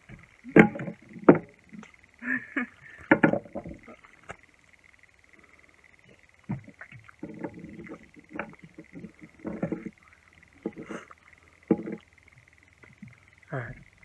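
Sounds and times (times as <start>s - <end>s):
faint high whine: 0.0s - 14.0s.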